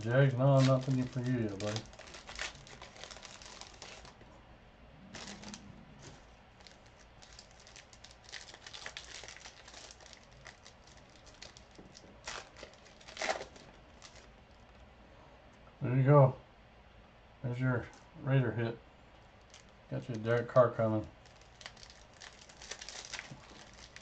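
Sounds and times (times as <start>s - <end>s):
cards rustling: 0.0s - 4.2s, 5.2s - 14.3s, 21.2s - 24.0s
trading cards crinkling: 0.0s - 4.2s, 5.1s - 14.6s, 19.4s - 24.0s.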